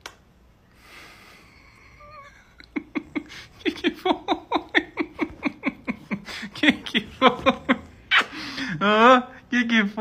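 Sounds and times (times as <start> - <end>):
man laughing hard: 2.0 - 8.8.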